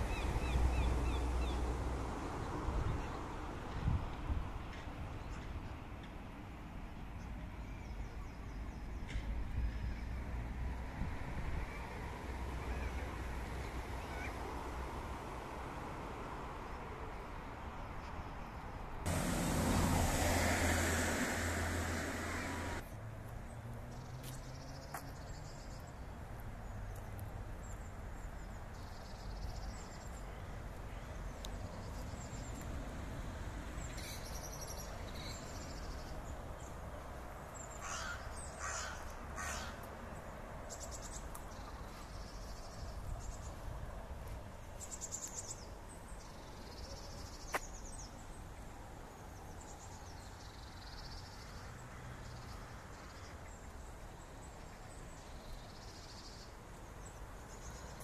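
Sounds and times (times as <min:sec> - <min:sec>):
birds singing and calling: 0:33.8 - 0:36.8
harsh caws: 0:37.8 - 0:39.8.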